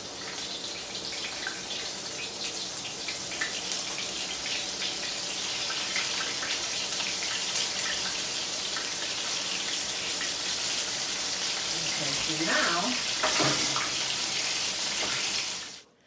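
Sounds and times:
chicken frying in hot oil: 0.0s - 15.9s.

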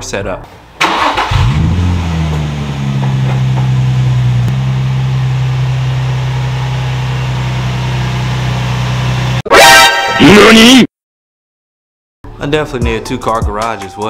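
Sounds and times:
car engine idling: 0.8s - 9.4s.

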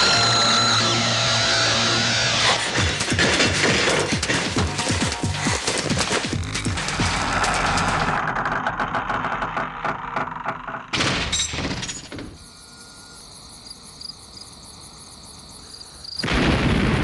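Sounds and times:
faint high chirps: 12.4s - 13.7s
loud rumbling blast: 16.2s - 17.0s
loud sudden burst: 16.2s - 17.0s.

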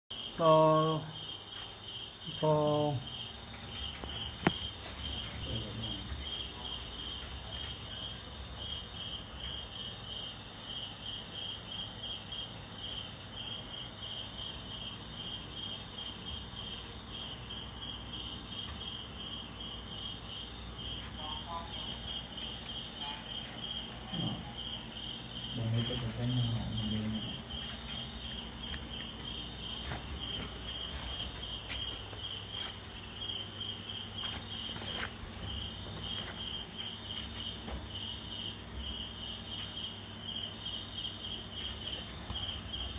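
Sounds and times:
cricket chirping: 0.1s - 42.9s
low voice: 25.6s - 27.4s.

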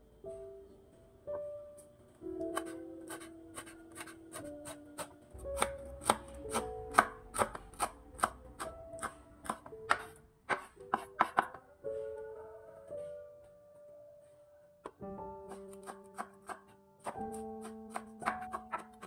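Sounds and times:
knife chopping on wooden board: 2.6s - 11.6s, 15.5s - 19.0s.

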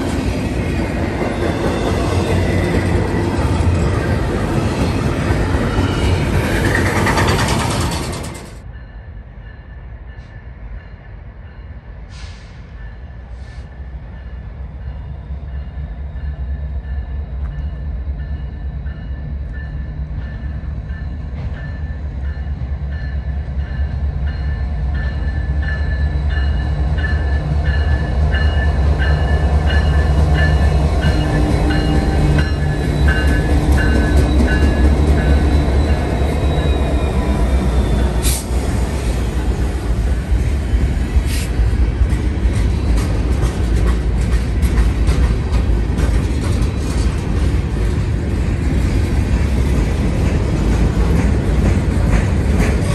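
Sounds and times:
diesel locomotive engine rumble: 0.0s - 52.9s
crossing bell ringing: 7.2s - 11.9s, 12.8s - 38.2s.

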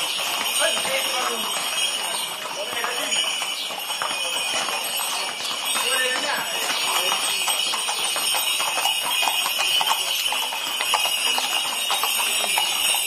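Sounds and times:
horse hooves on pavement: 0.0s - 13.0s.

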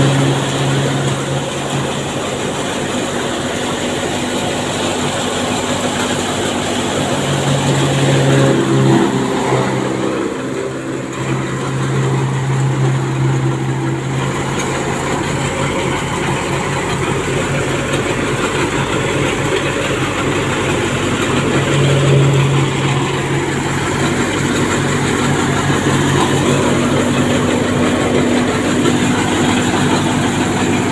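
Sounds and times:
low engine hum: 0.0s - 30.9s
thresher mechanical din: 0.0s - 30.9s.

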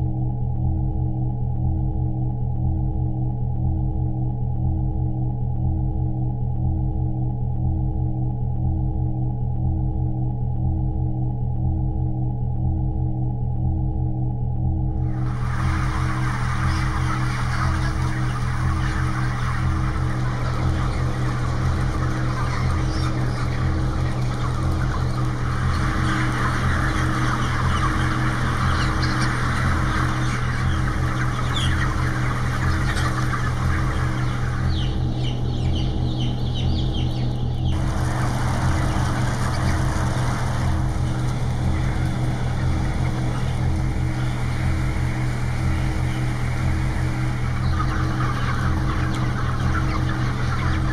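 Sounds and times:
low pulsing drone: 0.0s - 50.9s
chickens cheeping: 15.1s - 50.9s.

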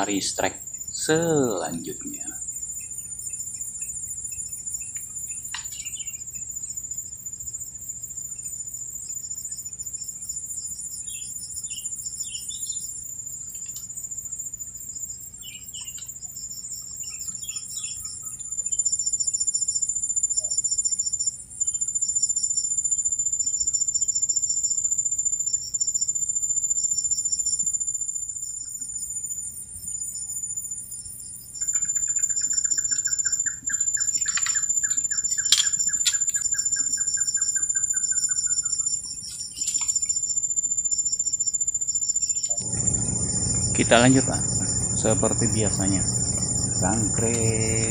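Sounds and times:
insects droning: 0.0s - 47.9s
rhythmic pulsing insect chirps: 0.0s - 47.9s
rapid pulsed call: 42.6s - 47.9s.

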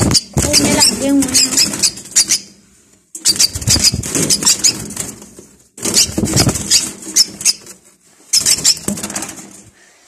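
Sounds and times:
bird wings fluttering: 3.3s - 7.8s.

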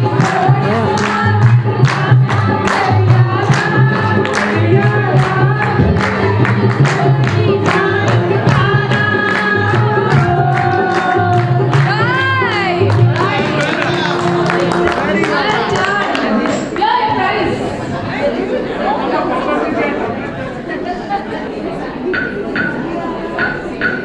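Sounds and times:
woman singing into a microphone: 0.0s - 13.7s
music with a steady beat: 0.0s - 14.9s
woman singing along: 0.0s - 17.5s.

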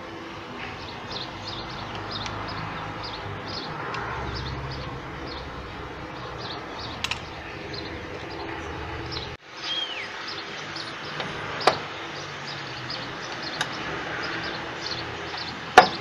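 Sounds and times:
steady low hum: 0.0s - 9.4s
falling whistled bird call: 9.6s - 10.2s.

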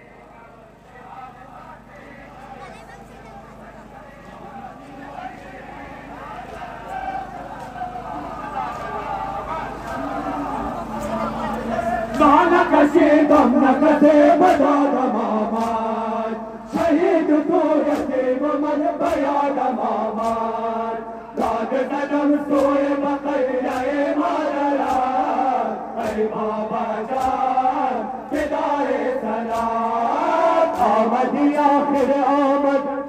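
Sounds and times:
men chanting: 0.0s - 33.0s
sharp rhythmic strikes: 15.4s - 16.1s, 24.8s - 25.4s, 27.0s - 28.6s, 29.4s - 32.4s.

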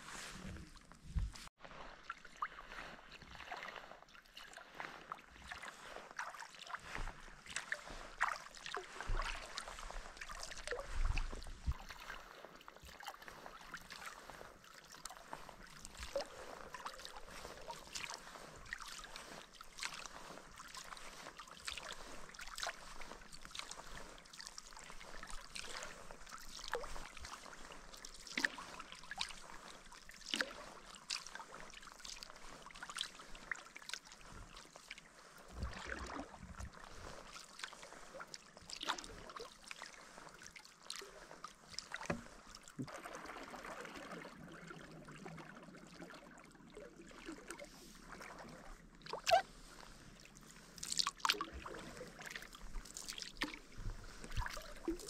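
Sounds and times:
paddle splashing in water: 0.0s - 55.0s
water dripping off paddle: 3.2s - 45.3s, 50.7s - 55.0s.

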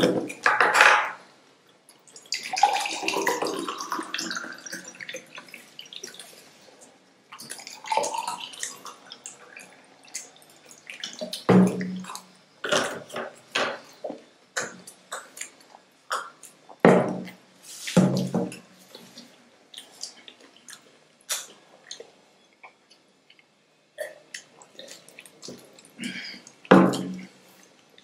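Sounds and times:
person gulping water: 2.2s - 6.4s, 7.3s - 13.2s, 14.6s - 17.4s, 24.0s - 27.4s
wet mouth clicks: 19.8s - 26.6s.

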